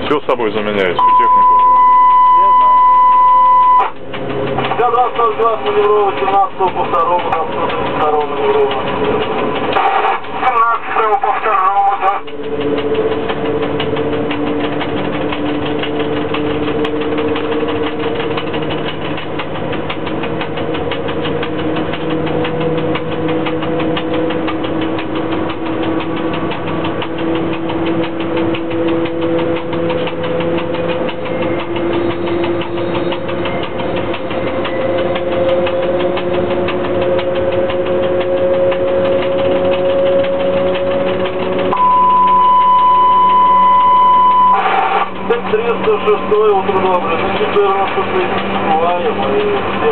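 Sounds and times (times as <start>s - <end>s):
traction drive whine: 0.0s - 49.9s
train rumble and rattle: 0.0s - 49.9s
high beep: 1.0s - 4.0s, 41.7s - 44.7s.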